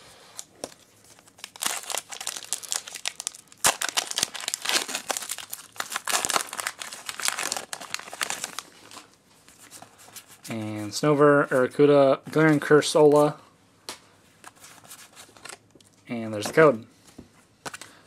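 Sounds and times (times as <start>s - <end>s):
foil wrapper crinkling and tearing: 0.6s - 9.1s.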